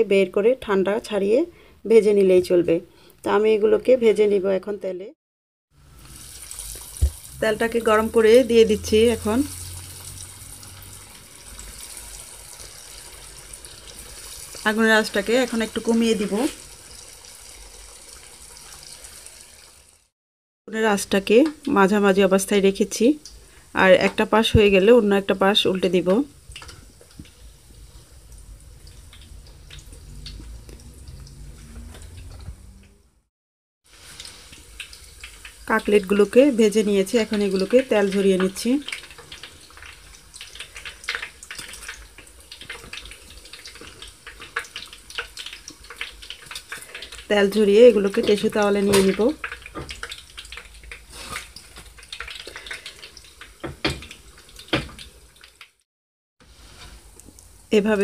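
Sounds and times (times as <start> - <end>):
food deep-frying in oil: 5.7 - 20.1, 20.8 - 33.0, 33.8 - 55.8, 56.4 - 58.0.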